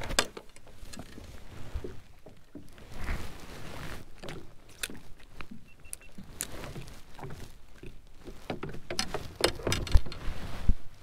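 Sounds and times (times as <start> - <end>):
gear clicks and knocks: 6.4 - 10.3.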